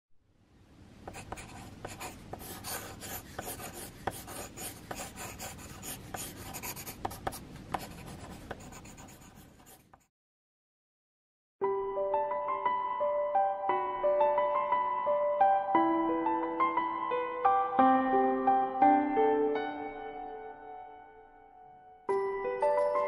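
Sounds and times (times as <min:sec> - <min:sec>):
pencil scratching on paper: 0:01.1 - 0:10.1.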